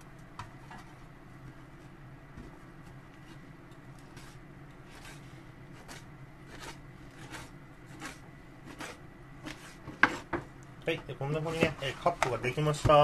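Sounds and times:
knife cutting on wooden board: 0:04.1 - 0:10.4.

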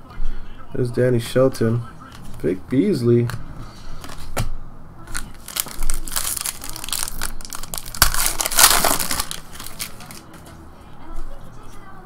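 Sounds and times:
wrapper tearing open: 0:05.1 - 0:10.2
foil wrapper crinkling: 0:05.1 - 0:10.3
sharp crack: 0:05.6 - 0:09.8.

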